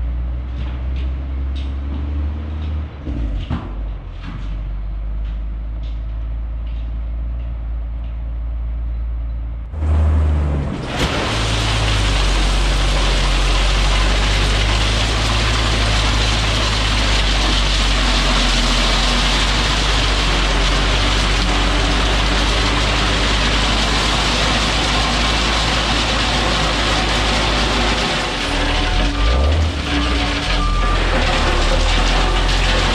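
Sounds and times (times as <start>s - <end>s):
distant engine rumble: 0.0s - 32.9s
dump truck engine running: 0.0s - 32.9s
crushed rock spilling: 10.7s - 32.9s.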